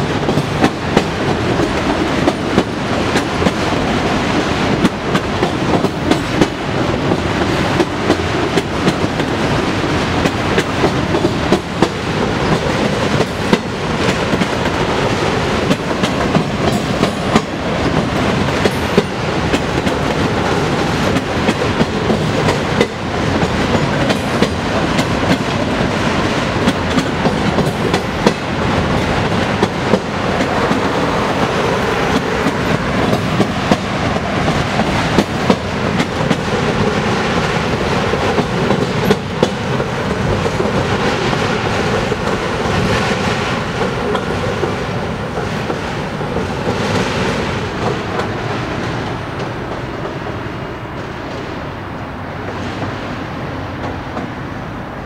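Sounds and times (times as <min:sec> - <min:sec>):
train wheels clattering over rail joints: 0:00.0 - 0:50.2.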